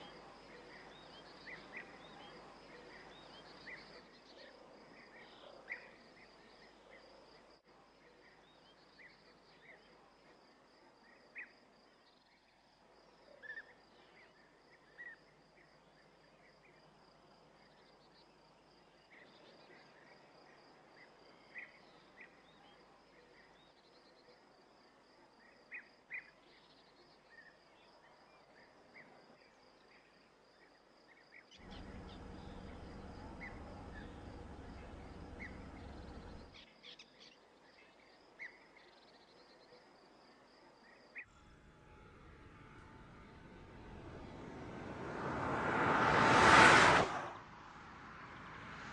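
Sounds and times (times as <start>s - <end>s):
low hum: 31.6s - 36.6s, 41.3s - 48.9s.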